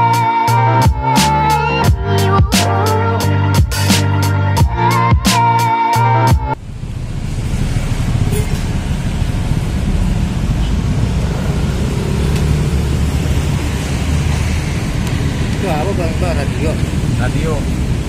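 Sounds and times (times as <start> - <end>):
low rumbling outdoor noise: 6.6 - 18.0.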